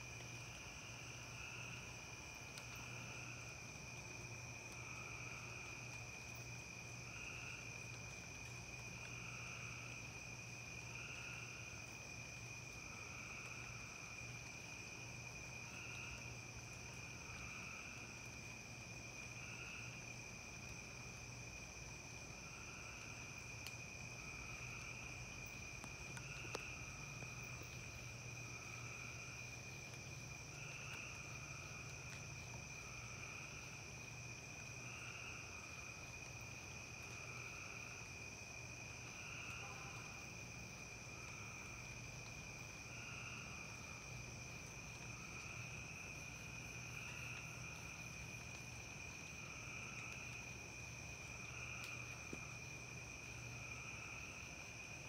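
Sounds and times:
crickets trilling: 0.0s - 55.0s
low pulsing insect call: 0.0s - 55.0s
faint ticks: 2.3s - 10.0s, 22.5s - 38.0s, 41.2s - 53.5s.

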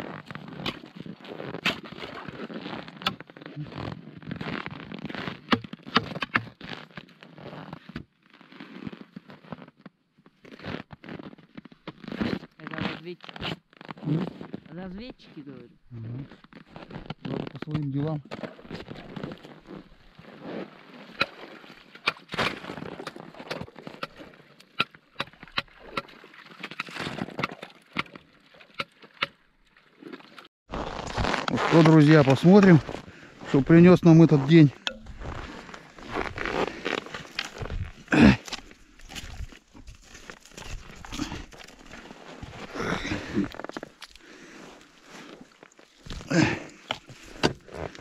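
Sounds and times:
crunching and scraping in snow: 0.0s - 24.6s, 29.9s - 48.0s
chisels chopping ice: 5.4s - 6.5s.

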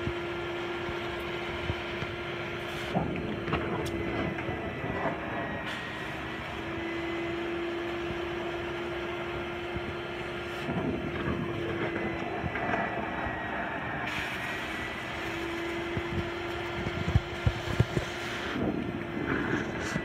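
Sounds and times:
vacuum motor hum and whine: 0.0s - 20.0s
vacuum suction rushing air and water: 10.4s - 20.0s.

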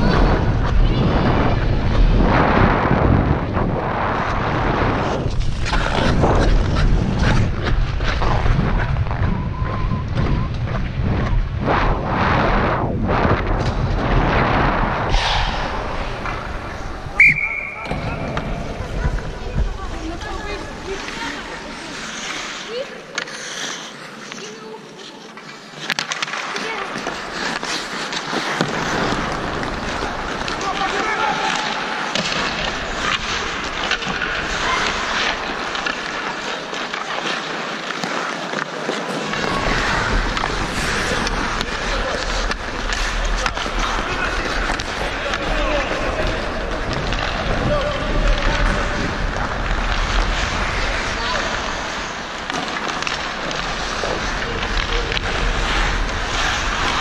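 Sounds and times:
wind rumble on microphone: 0.0s - 17.2s
skate blades scraping ice: 3.3s - 57.0s.

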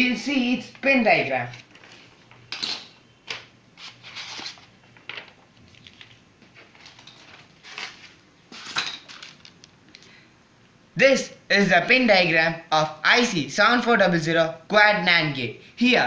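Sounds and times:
paper rustling: 1.4s - 2.4s, 3.8s - 9.6s.

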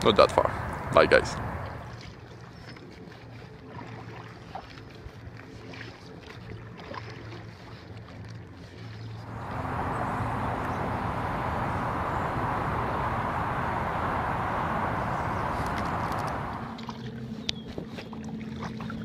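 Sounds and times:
paddle splashing in water: 0.8s - 19.0s
low steady hum: 9.1s - 17.2s
loud steady rushing noise: 9.2s - 16.8s.

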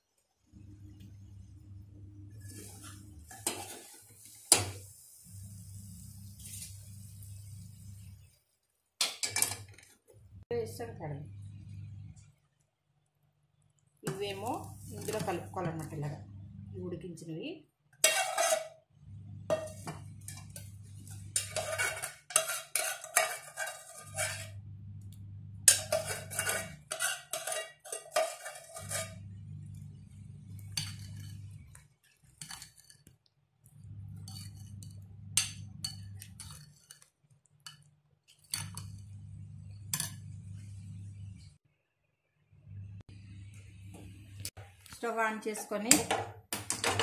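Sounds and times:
spoon clinking and scraping glass bowl: 18.0s - 18.8s, 19.5s - 24.6s, 25.7s - 29.8s, 30.5s - 33.1s, 34.1s - 39.2s, 39.9s - 40.3s.

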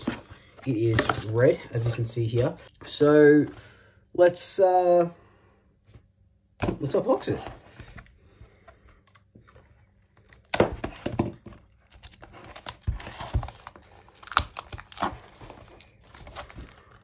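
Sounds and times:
plastic wrapping crinkling and tearing: 11.5s - 17.0s.

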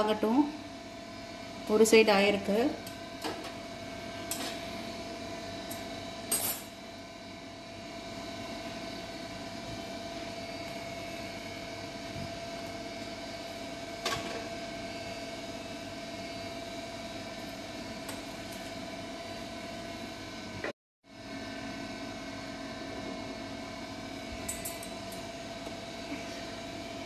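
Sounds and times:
gas burner flame hissing: 8.0s - 20.1s.

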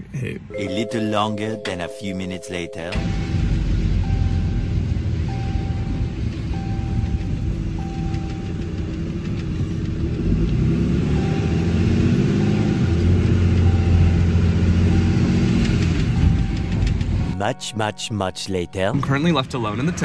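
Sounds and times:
truck engine accelerating: 3.0s - 17.3s.

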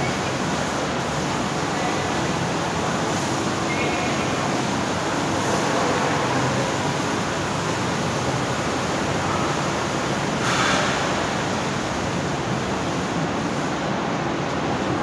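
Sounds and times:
factory machinery running: 0.0s - 15.0s.

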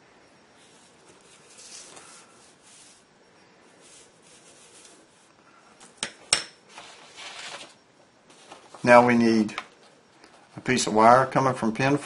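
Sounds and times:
breadboard rubbing on desk: 0.6s - 3.0s, 3.8s - 5.2s.

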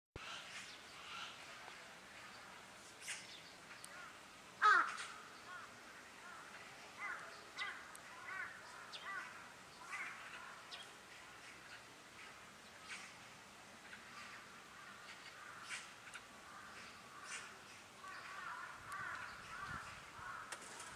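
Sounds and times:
magpies calling: 3.8s - 10.9s, 13.8s - 20.9s.

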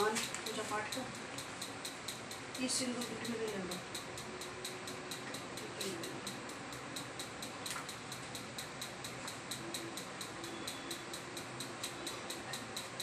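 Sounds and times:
rapid even ticking: 0.0s - 13.0s.

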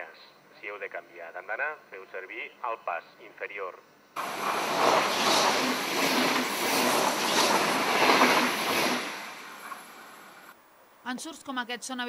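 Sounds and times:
train passing at speed: 4.2s - 10.6s.

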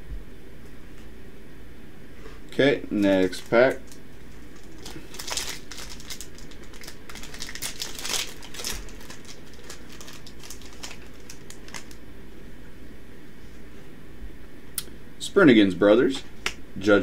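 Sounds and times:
foil wrapper crinkling and tearing: 3.0s - 12.0s.

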